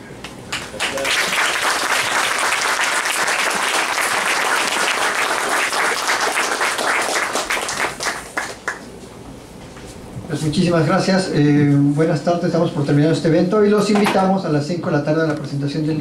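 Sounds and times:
audience applauding: 0:00.5 - 0:08.9.

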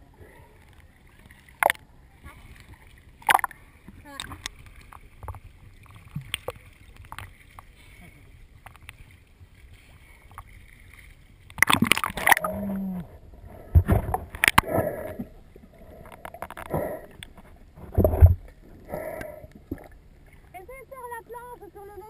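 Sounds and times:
low hum: 0:00.0 - 0:21.8
water lapping: 0:00.0 - 0:22.0
water splashing: 0:00.0 - 0:22.0
muffled underwater bubbling: 0:01.5 - 0:02.5, 0:03.2 - 0:04.6, 0:11.6 - 0:17.3.

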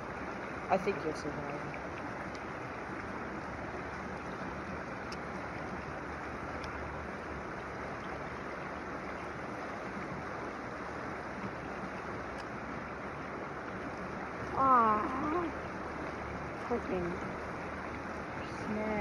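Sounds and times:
creek water running: 0:00.0 - 0:19.0
faint ticks: 0:05.0 - 0:05.7.

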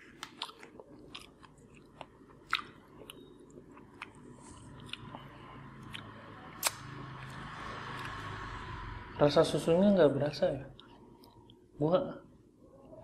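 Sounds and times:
person chewing crunchy chips: 0:00.0 - 0:08.5.

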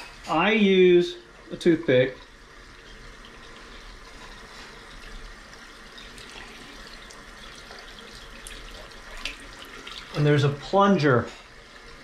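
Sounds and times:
faucet running into sink: 0:01.5 - 0:12.0.

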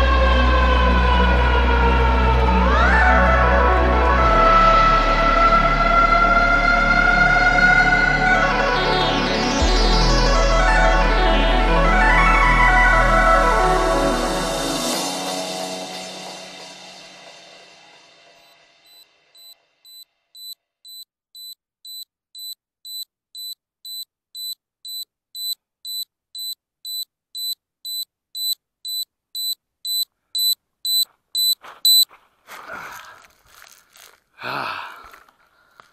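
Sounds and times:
high electronic beeps: 0:18.9 - 0:32.0.

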